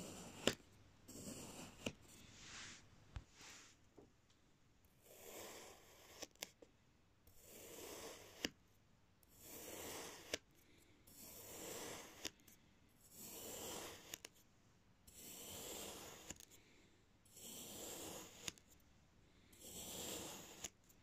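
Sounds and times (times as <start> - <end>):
knife slicing through sand: 15.3 - 16.3.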